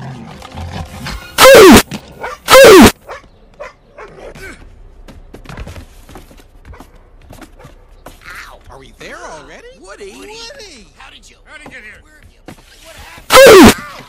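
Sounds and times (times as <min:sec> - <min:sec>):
distorted dog bark: 0:01.4 - 0:04.2, 0:13.3 - 0:13.8.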